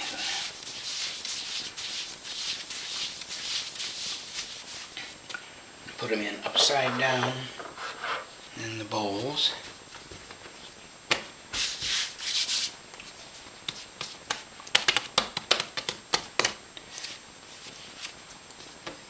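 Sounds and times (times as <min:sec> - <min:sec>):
hands slapping dough: 0:13.6 - 0:16.6.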